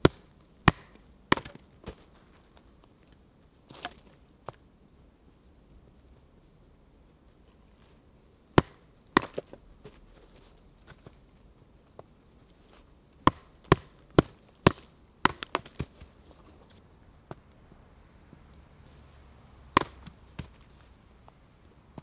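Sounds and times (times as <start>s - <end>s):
machete chopping wood: 0.0s - 2.0s, 8.6s - 9.6s, 13.2s - 16.0s, 19.7s - 20.6s.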